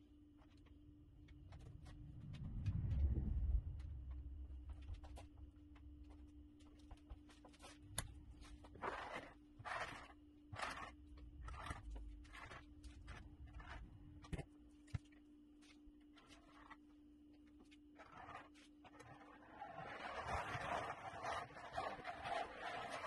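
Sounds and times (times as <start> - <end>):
faint steady hum: 0.0 - 22.8
trowel scraping countertop: 8.4 - 13.8.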